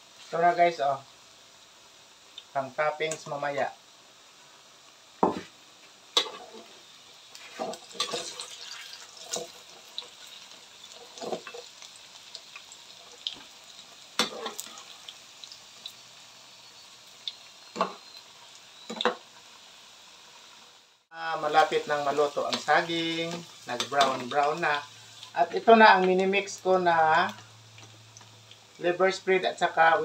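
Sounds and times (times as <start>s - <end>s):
oil sizzling in pan: 0.0s - 30.0s
metal spatula scraping pan: 6.2s - 6.8s, 7.4s - 9.6s.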